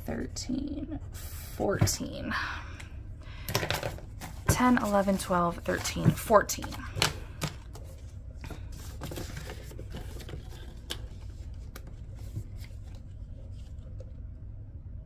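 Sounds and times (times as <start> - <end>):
plastic pages handled and turned: 3.6 - 14.2
banknotes rustling: 3.9 - 13.8.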